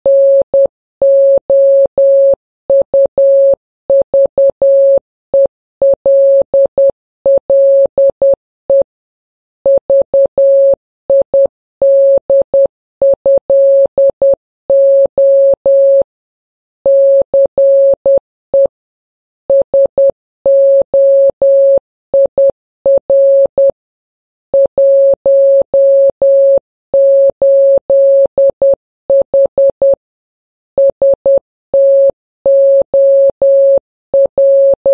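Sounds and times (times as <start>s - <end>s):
morse code beeps: 30.8s - 34.9s.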